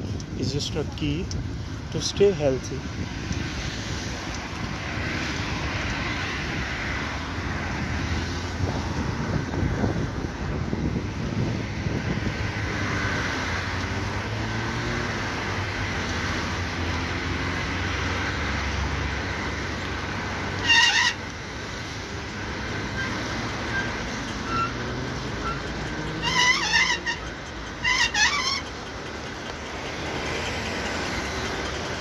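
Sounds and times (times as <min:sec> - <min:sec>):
wind on microphone: 0:00.0 - 0:14.2
low hum of passing traffic: 0:00.0 - 0:32.0
road noise: 0:00.0 - 0:32.0
high wavering squeals: 0:22.8 - 0:28.8.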